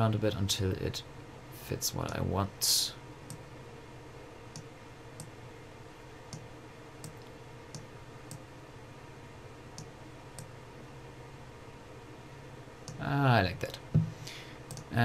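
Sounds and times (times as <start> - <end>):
faint steady hum: 0.0 - 15.0
computer mouse clicking: 12.8 - 13.0, 14.7 - 14.9.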